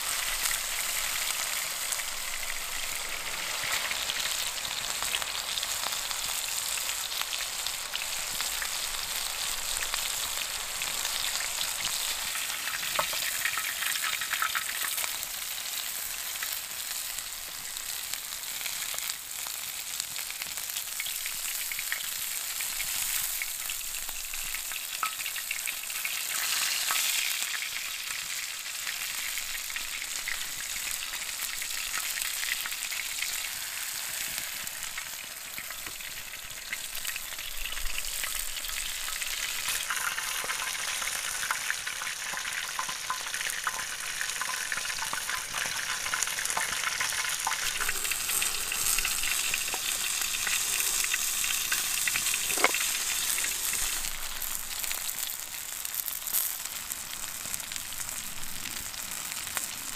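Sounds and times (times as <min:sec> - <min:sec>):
food sizzling in grill pan: 0:00.0 - 0:59.9
pops and crackles: 0:51.7 - 0:53.0.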